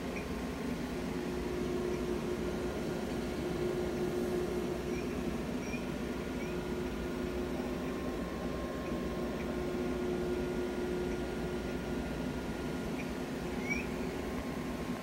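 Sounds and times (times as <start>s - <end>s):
machine hum with hiss: 0.0s - 15.0s
faint high chirps: 12.9s - 14.0s.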